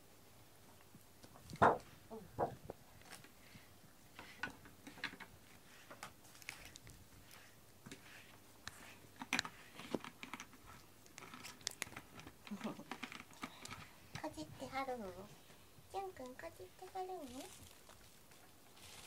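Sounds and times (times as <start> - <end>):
cat gnawing plastic brush: 4.1 - 14.0.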